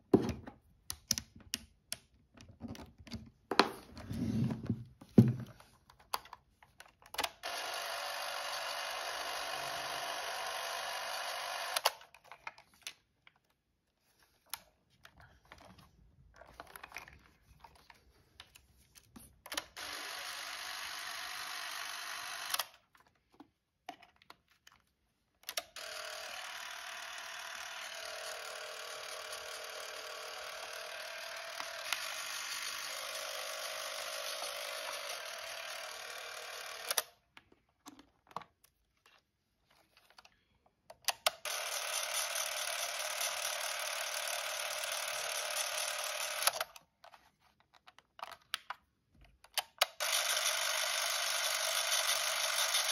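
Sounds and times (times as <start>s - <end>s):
movie camera motor whirring: 7.2s - 12.1s, 19.5s - 22.8s, 25.5s - 37.2s, 41.1s - 46.8s, 49.7s - 52.9s.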